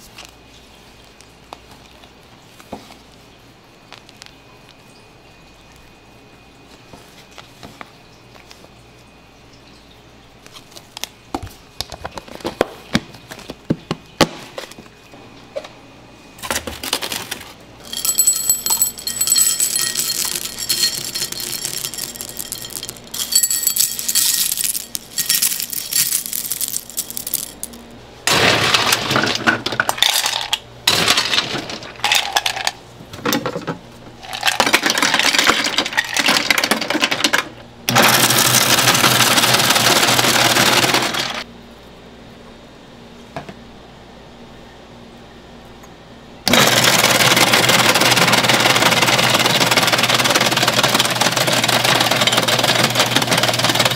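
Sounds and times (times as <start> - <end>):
ice cubes rattling into machine: 16.6 - 32.8, 34.2 - 41.4, 46.5 - 53.9
cereal clattering into bowl: 16.9 - 29.3.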